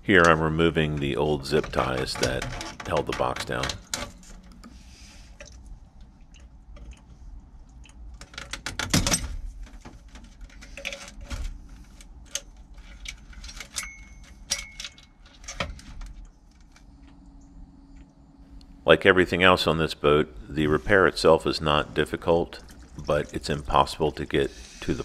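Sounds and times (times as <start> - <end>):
tools clattering: 12.2 - 16.8
hand tools clinking on metal: 13.5 - 15.5.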